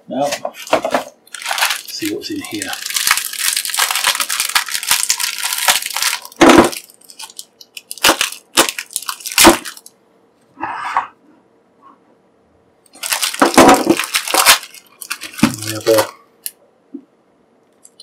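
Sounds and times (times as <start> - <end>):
plastic bag rustling: 0.3 - 10.0, 12.9 - 16.2
plastic crackling: 0.5 - 10.0, 12.9 - 16.6.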